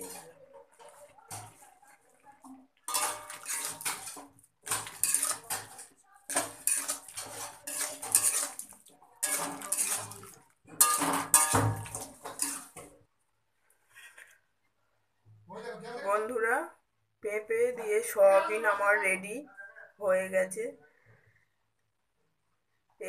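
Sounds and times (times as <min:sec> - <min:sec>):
metal spatula scraping a pan: 0:00.0 - 0:13.0.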